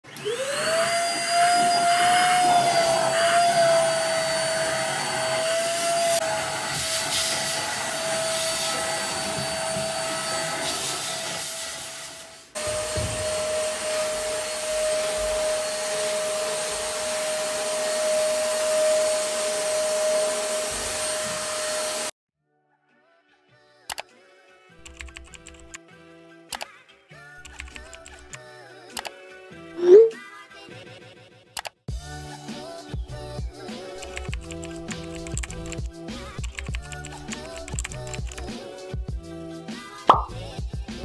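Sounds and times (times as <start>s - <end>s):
vacuum cleaner motor whine: 0.1s - 22.1s.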